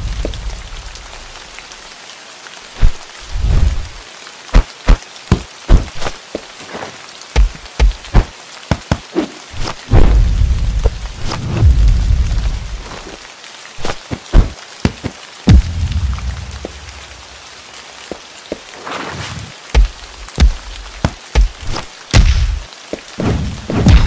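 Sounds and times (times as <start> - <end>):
heavy low rumble: 0.0 - 1.3, 9.9 - 12.9
rain falling: 0.0 - 24.0.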